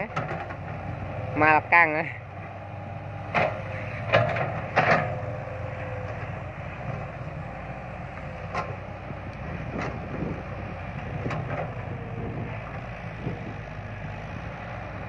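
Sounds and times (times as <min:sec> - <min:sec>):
excavator diesel engine running: 0:00.0 - 0:15.0
machine knocks and clanks: 0:03.3 - 0:05.2.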